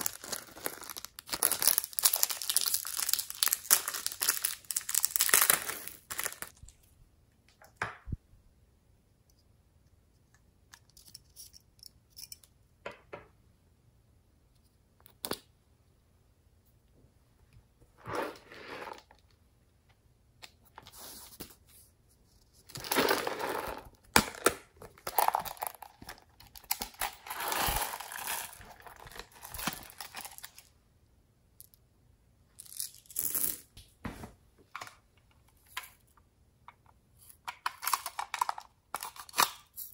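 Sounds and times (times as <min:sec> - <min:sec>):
plastic packaging crinkling and tearing: 0:00.0 - 0:06.7, 0:25.0 - 0:30.6.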